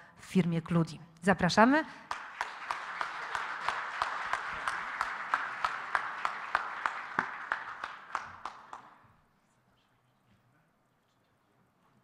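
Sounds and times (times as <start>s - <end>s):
audience applauding: 2.1s - 9.0s
single person clapping evenly: 2.1s - 9.0s.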